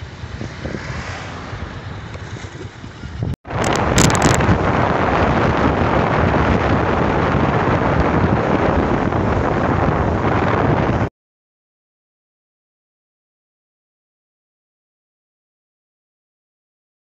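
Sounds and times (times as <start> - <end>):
road noise: 0.0 - 11.1
wind rushing over microphone: 0.0 - 11.1.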